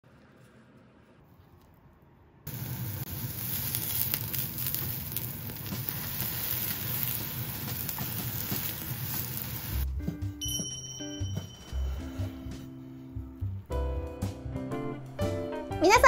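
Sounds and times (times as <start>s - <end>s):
tofu sizzling in oil: 2.5s - 9.8s.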